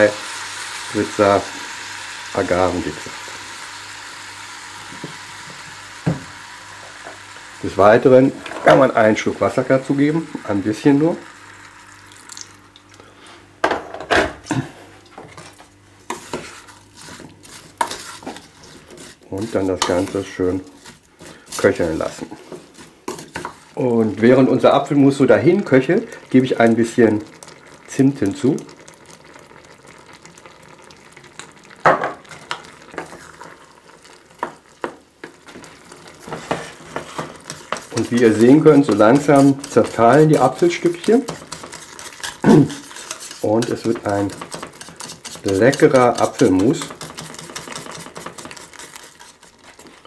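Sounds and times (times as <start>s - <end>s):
apples simmering with faint sizzle: 0.0s - 13.6s, 14.4s - 50.0s
wooden spoon stirring in a saucepan: 15.1s - 50.0s.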